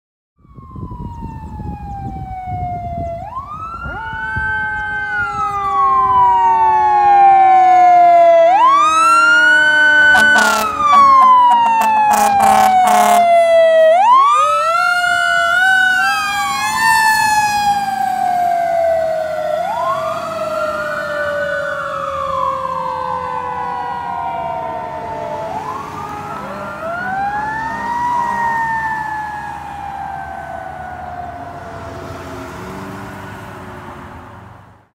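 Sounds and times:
fire engine siren wailing: 0.4 - 34.3
short horn blasts: 10.1 - 13.3.

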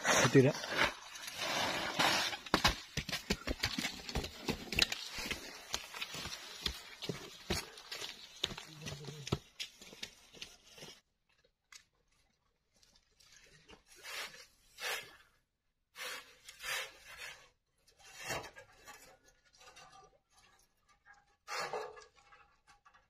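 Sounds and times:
sand sliding from metal wheelbarrow: 0.0 - 2.6, 16.0 - 17.4
footsteps on dirt: 1.4 - 10.9.

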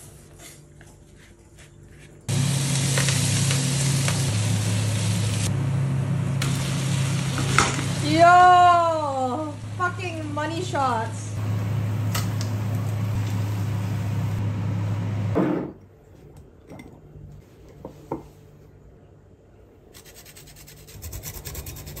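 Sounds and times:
pancake sizzling in oil: 2.3 - 5.5
low hum: 2.3 - 15.8
grater rasping cheese: 20.0 - 22.0.

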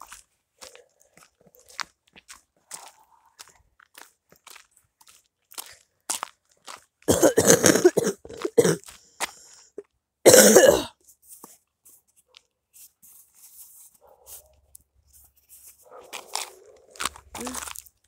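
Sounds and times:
footsteps crunching on dirt road: 0.0 - 9.5, 11.0 - 18.0
person coughing: 7.1 - 8.8, 10.3 - 11.0.

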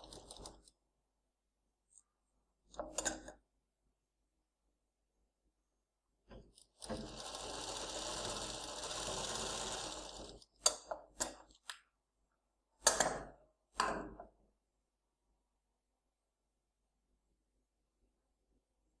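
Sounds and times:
industrial sewing machine stitching: 0.0 - 0.7, 6.4 - 11.4.

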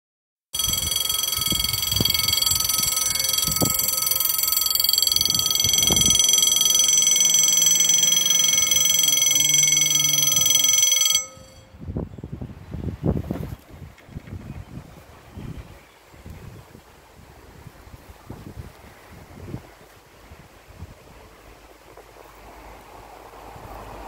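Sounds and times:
wind noise: 0.6 - 7.1, 11.4 - 24.0
level crossing warning bell: 0.6 - 11.8.

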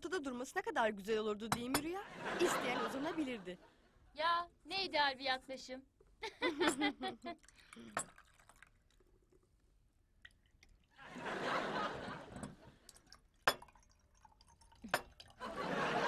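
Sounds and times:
glass clinks: 6.6 - 7.0, 7.8 - 8.3, 12.3 - 12.6, 13.4 - 13.8, 14.8 - 15.3
tea pouring into glasses: 6.6 - 16.0.

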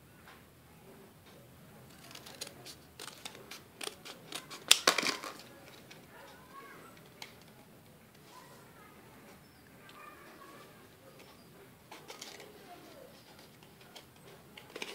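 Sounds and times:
scissors cutting plastic packaging: 1.9 - 5.9, 13.3 - 14.9.

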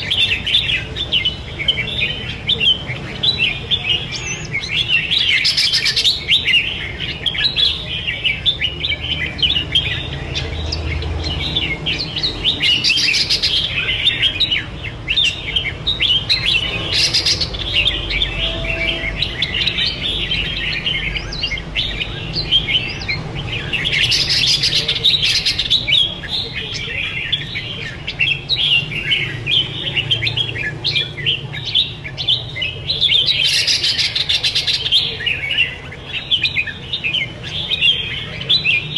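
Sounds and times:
birds singing chirpy phrases: 0.0 - 38.9.

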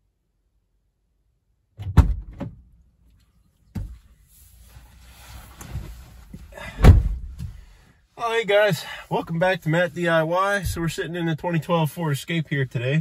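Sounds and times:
car door shutting thump: 1.8 - 2.5, 6.8 - 7.5
car door clunking open: 1.8 - 2.6, 6.7 - 7.5
rustling of person climbing in: 3.1 - 7.8.

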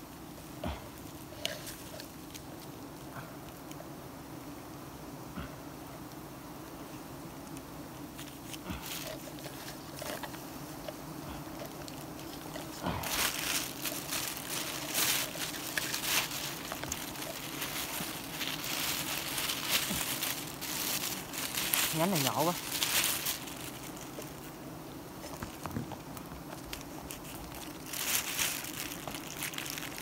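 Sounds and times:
bees buzzing: 0.0 - 30.0
plastic bag crinkling: 8.2 - 10.4, 11.5 - 24.5, 25.2 - 30.0.

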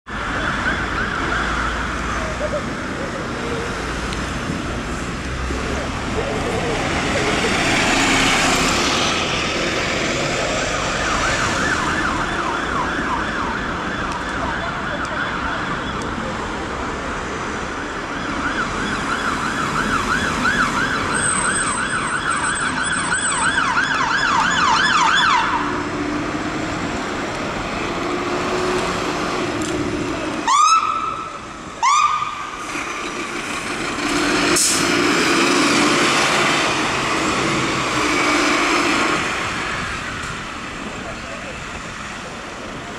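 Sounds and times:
fire engine siren yelping: 0.1 - 3.4, 10.3 - 16.4, 17.7 - 25.8, 30.4 - 32.7
truck engine passing: 2.2 - 11.8, 32.4 - 42.2
siren rising whoops: 10.8 - 15.7.

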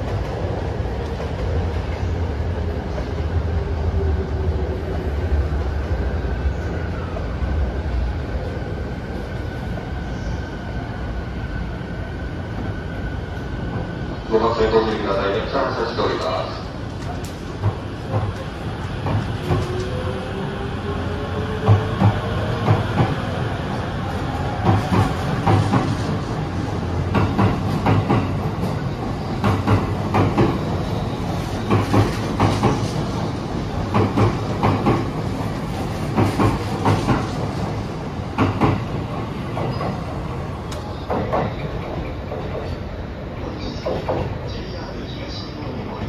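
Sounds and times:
train rumble: 0.0 - 46.0
train wheels clattering over rail joints: 31.6 - 33.2, 33.9 - 37.5.

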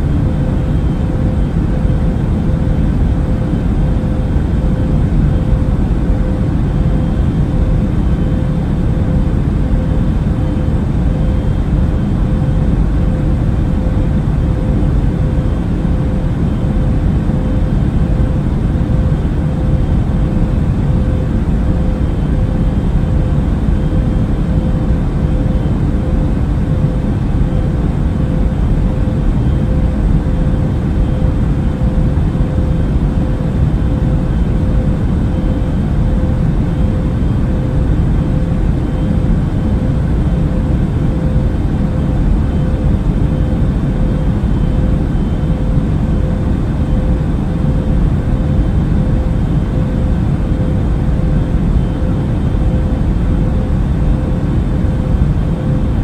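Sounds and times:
airliner cabin engine rush: 0.0 - 56.0
mid-pitched hum: 0.0 - 56.0.

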